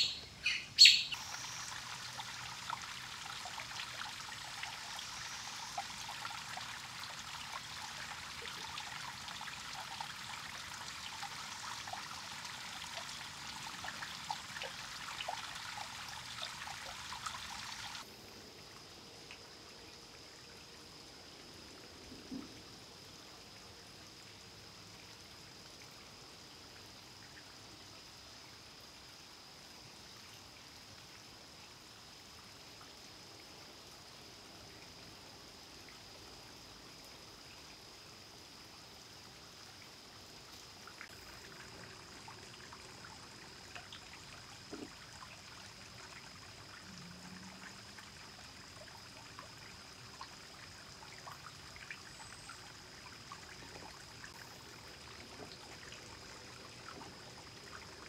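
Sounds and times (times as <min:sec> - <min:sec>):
cicada chorus: 0:00.0 - 0:18.1.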